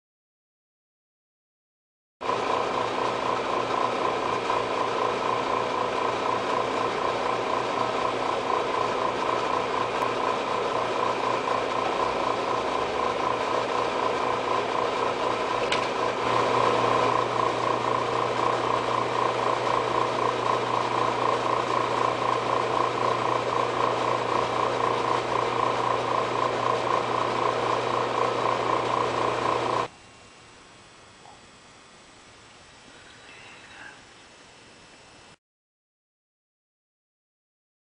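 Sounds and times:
electric machine whirring: 2.2 - 35.4
mains hum: 29.6 - 35.4.

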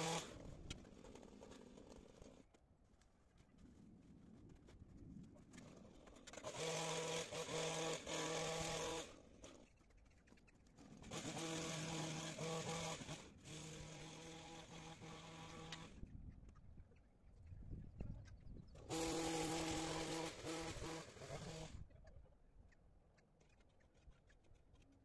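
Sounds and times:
hedge trimmer buzzing: 0.0 - 0.4, 6.2 - 9.6, 10.9 - 16.0, 18.8 - 21.9.

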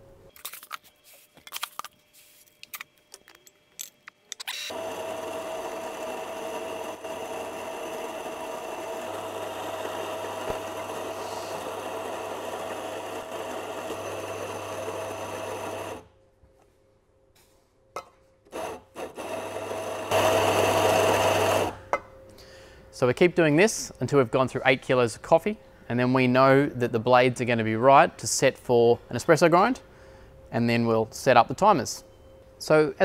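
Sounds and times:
coffee grinder grinding beans: 4.6 - 16.1, 18.5 - 21.8.

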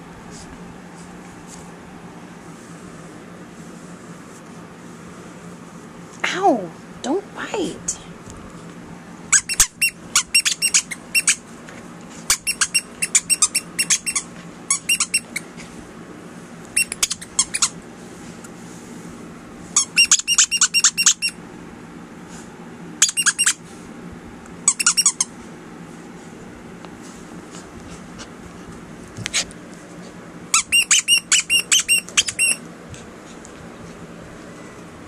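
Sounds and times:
dog toy squeaking: 9.3 - 11.4, 12.3 - 15.5, 16.8 - 17.8, 19.8 - 21.4, 23.0 - 23.6, 24.6 - 25.3, 30.5 - 32.6.

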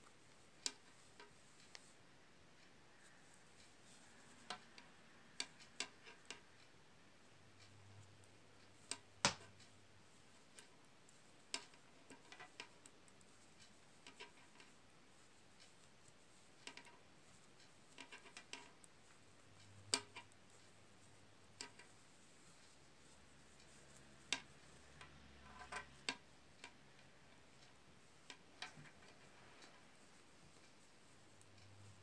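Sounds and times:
metal knitting needles clicking: 0.0 - 32.0.

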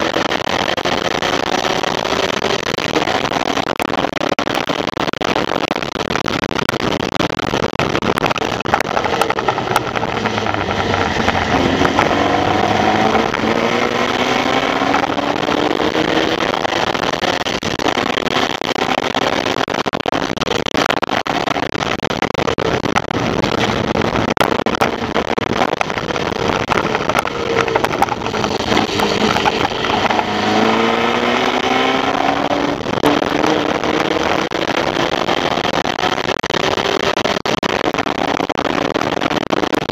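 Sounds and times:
race car engine accelerating: 9.0 - 16.9, 26.8 - 35.8.

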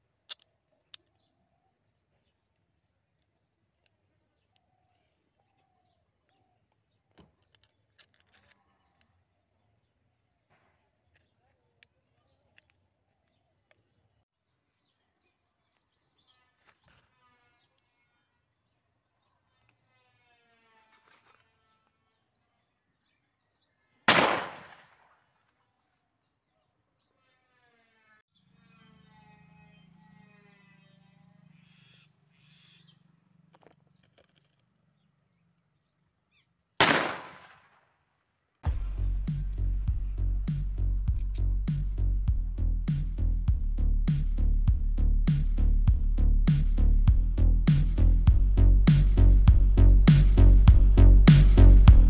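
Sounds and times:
faint bird calls: 28.4 - 35.6
wooden sound gun bang: 38.7 - 41.4.

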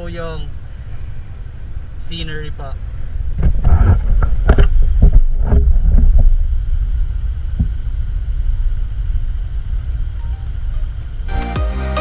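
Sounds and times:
wind rumbling on microphone: 2.7 - 11.3.

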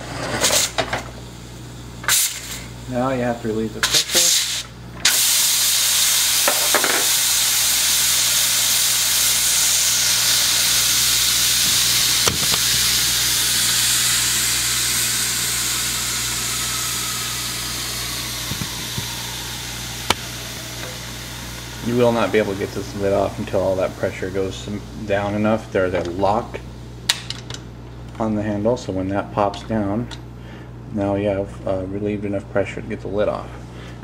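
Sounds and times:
steam hissing from pressure cooker: 2.0 - 26.6.

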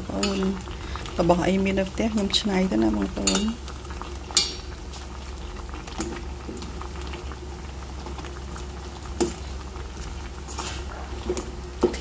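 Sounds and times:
broth boiling in a pot: 0.0 - 12.0
metal tongs clicking on pot: 0.1 - 0.6, 3.1 - 3.7, 4.3 - 4.6.

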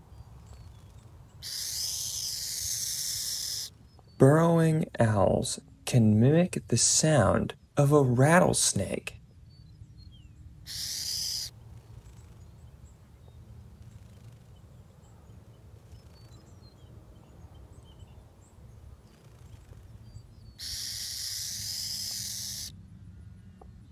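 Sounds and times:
owl hissing: 1.4 - 3.7, 10.7 - 12.3, 20.5 - 22.7.

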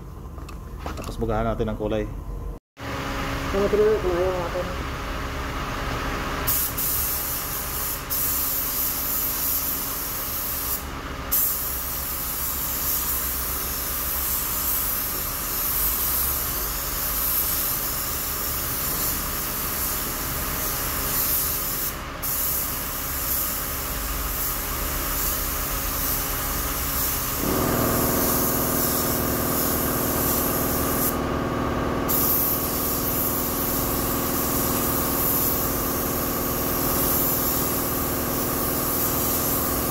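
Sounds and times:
paint spray gun hissing: 6.5 - 39.9
machine hum with low drone: 18.2 - 39.9.

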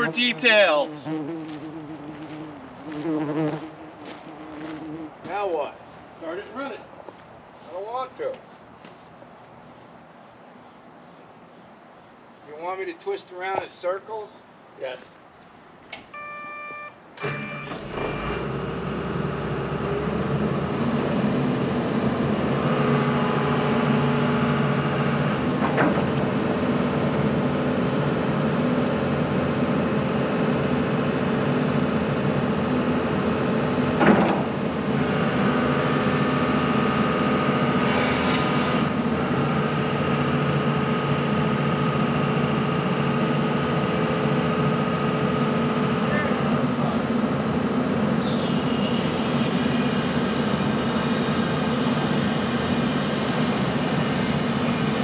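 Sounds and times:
diesel engine running: 0.0 - 5.4, 17.2 - 55.0
hydraulic whine: 15.9 - 55.0.

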